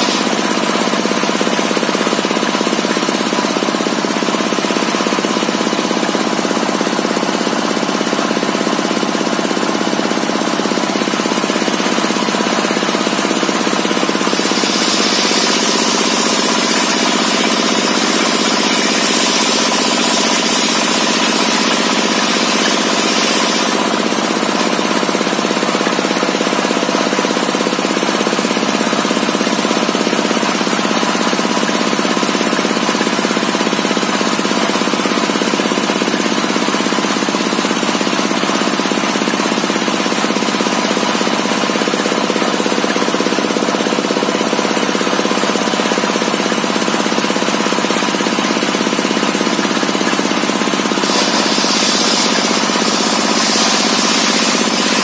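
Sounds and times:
circular saw blade spinning: 0:10.7 - 0:26.2, 0:49.4 - 0:55.0
saw blade cutting log: 0:13.5 - 0:25.0, 0:49.5 - 0:55.0.

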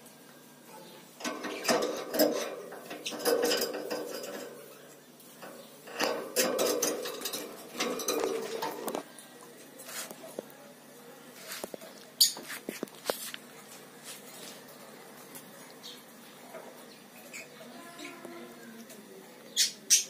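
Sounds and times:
bird claws and beak rattling wire cage: 0:01.2 - 0:04.8, 0:05.4 - 0:09.0.

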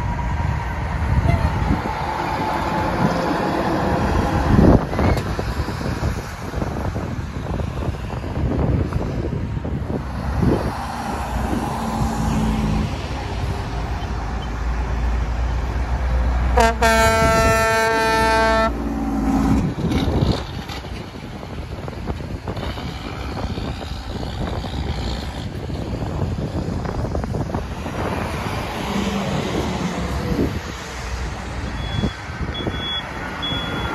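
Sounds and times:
truck diesel engines rumbling: 0:00.0 - 0:33.9
truck air horn: 0:16.5 - 0:18.9.

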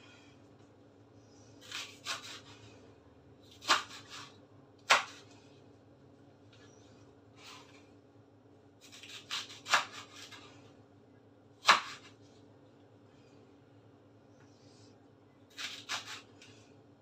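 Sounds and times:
knife chopping on wooden board: 0:03.6 - 0:05.3, 0:08.8 - 0:10.4, 0:11.6 - 0:12.1, 0:15.5 - 0:16.3.

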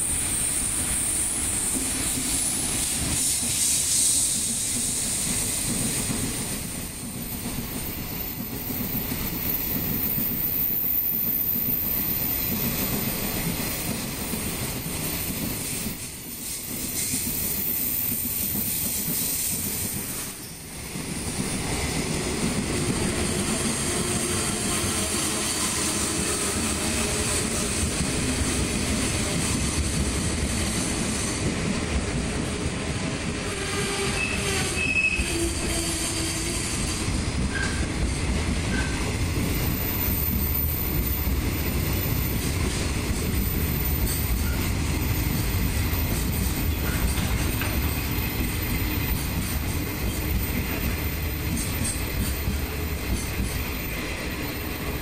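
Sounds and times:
train wheels running on rails: 0:00.0 - 0:55.0.

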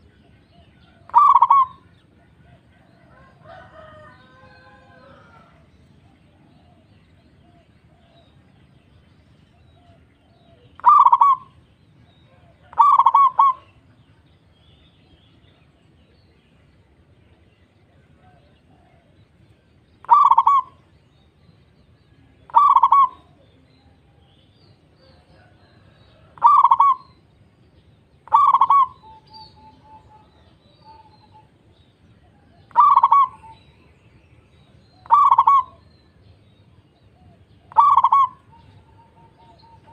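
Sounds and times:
dove cooing: 0:00.0 - 0:08.4, 0:09.6 - 0:11.6, 0:12.2 - 0:13.8, 0:20.0 - 0:20.8, 0:22.4 - 0:24.0, 0:25.1 - 0:27.2, 0:28.2 - 0:31.5, 0:32.2 - 0:33.8, 0:34.9 - 0:35.9, 0:37.1 - 0:39.9.

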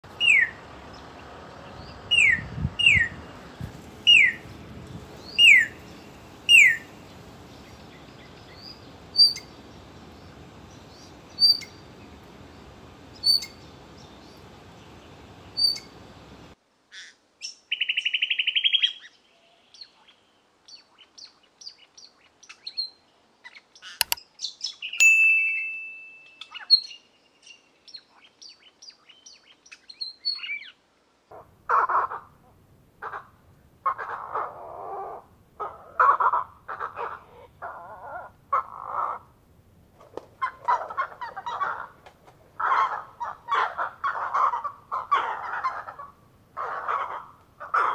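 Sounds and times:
birds whistling and chirping: 0:00.2 - 0:00.6, 0:01.8 - 0:03.2, 0:04.1 - 0:04.4, 0:05.2 - 0:06.9, 0:07.7 - 0:09.6, 0:10.9 - 0:11.8, 0:13.2 - 0:14.4, 0:15.5 - 0:16.0
buzzy bird trill: 0:25.0 - 0:26.9.

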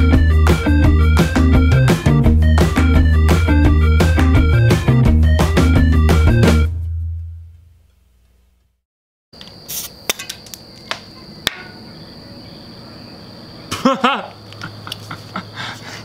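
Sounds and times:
background music: 0:00.0 - 0:07.4
cricket chirring: 0:09.4 - 0:16.0.

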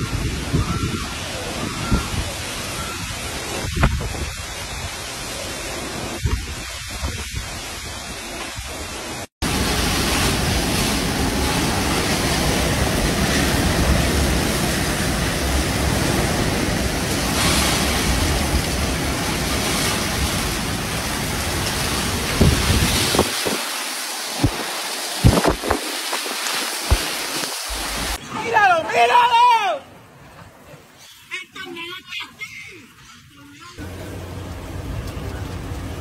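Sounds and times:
wind buffeting microphone: 0:00.0 - 0:28.2
wind and heavy rain: 0:00.0 - 0:36.0.

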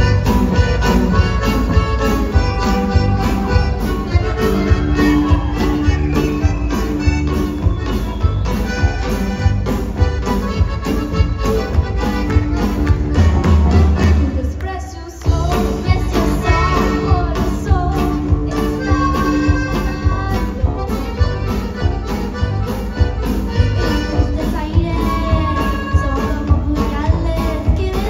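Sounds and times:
accordion band music: 0:00.0 - 0:14.6, 0:15.2 - 0:28.0.

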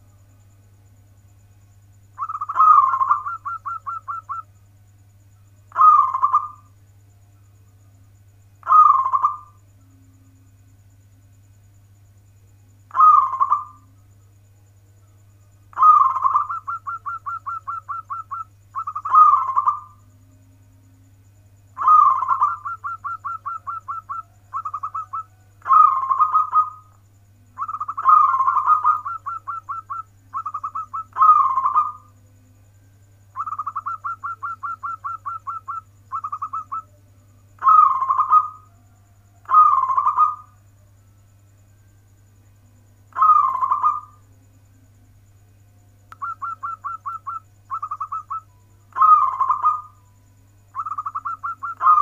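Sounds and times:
steady low hum: 0:00.0 - 0:52.0
dove cooing: 0:02.2 - 0:04.5, 0:05.7 - 0:06.7, 0:08.6 - 0:09.6, 0:12.9 - 0:13.9, 0:15.7 - 0:20.1, 0:21.8 - 0:32.2, 0:33.3 - 0:37.0, 0:37.6 - 0:38.7, 0:39.4 - 0:40.6, 0:43.1 - 0:44.2, 0:46.1 - 0:50.0, 0:50.7 - 0:52.0.

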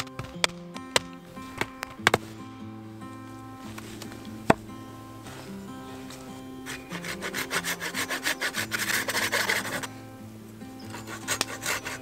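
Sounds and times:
hand saw cutting wood: 0:06.0 - 0:10.0, 0:10.8 - 0:12.0.

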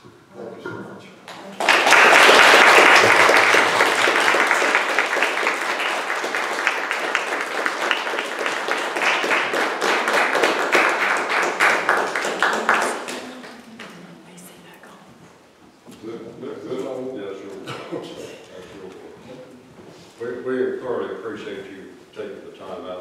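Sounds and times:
audience applauding: 0:01.3 - 0:14.0.

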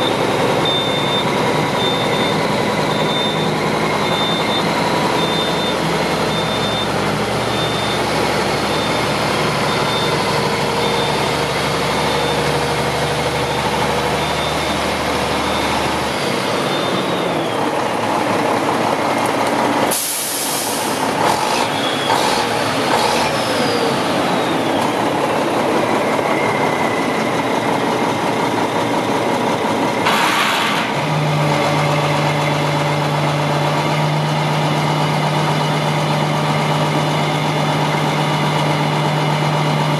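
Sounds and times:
diesel truck engine idling: 0:00.0 - 0:30.1, 0:30.9 - 0:39.9
air brake hiss: 0:19.9 - 0:21.0.

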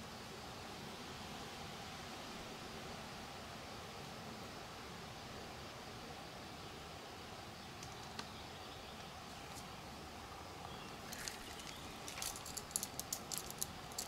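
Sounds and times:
faint outdoor hiss: 0:00.0 - 0:14.0
small splashes at water surface: 0:11.1 - 0:12.6.

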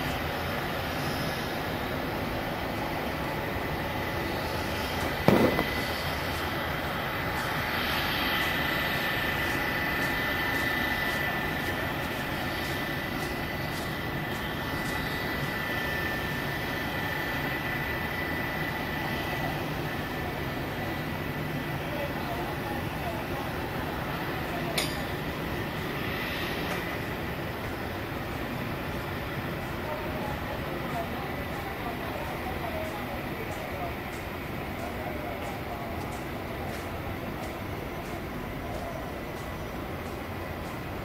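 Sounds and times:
jet engines at low thrust: 0:00.0 - 0:41.0
short sharp knock: 0:05.2 - 0:05.9.

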